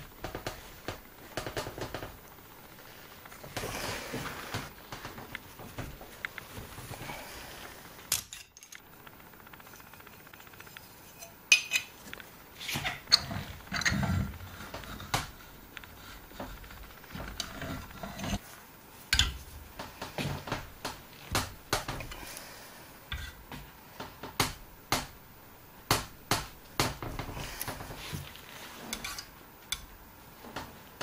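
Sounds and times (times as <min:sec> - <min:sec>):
metal scraping and clinking: 0:28.7 - 0:29.4.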